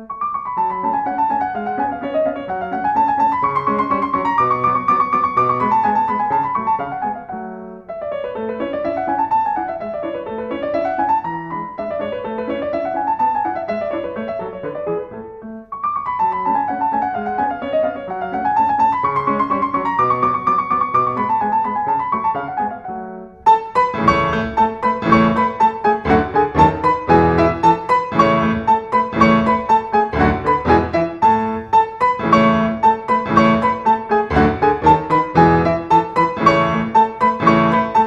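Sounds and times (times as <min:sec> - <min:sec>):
piano music: 0:00.0 - 0:38.0.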